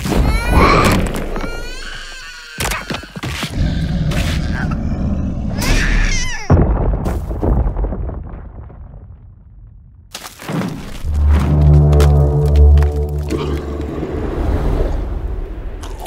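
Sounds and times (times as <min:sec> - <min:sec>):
creature cries: 0:00.0 - 0:06.6
music: 0:11.1 - 0:14.2.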